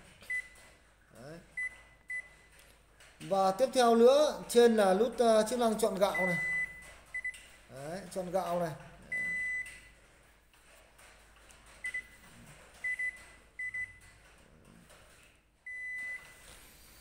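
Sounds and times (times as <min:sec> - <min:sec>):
rice cooker beeps: 0:06.1 - 0:07.4, 0:15.7 - 0:16.4.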